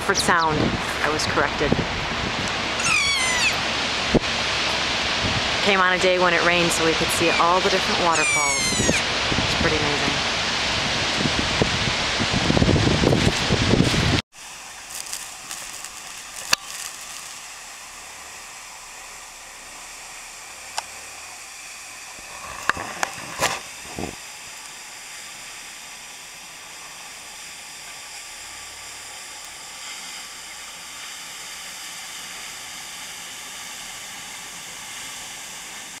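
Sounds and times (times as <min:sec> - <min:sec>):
waterfall hissing: 0:00.0 - 0:36.0.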